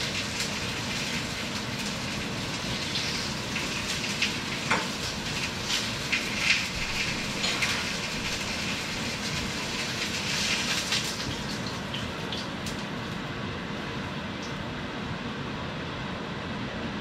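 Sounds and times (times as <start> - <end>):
chicken sizzling in a pan: 0.0 - 13.2
crackles: 0.0 - 13.3.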